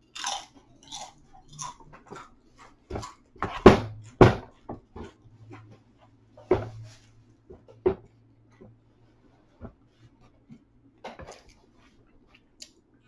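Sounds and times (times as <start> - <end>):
loud knocks: 3.4 - 4.9.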